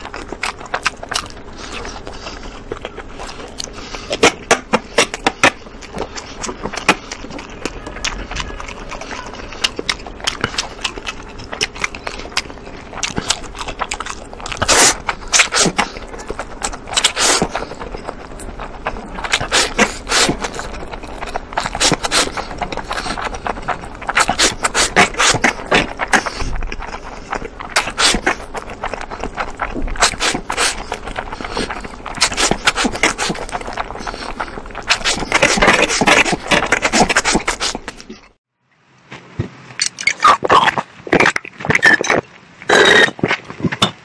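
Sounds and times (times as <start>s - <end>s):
person slurping noodles: 0.0s - 38.2s, 40.0s - 43.3s
chewing and smacking clicks: 0.0s - 38.3s.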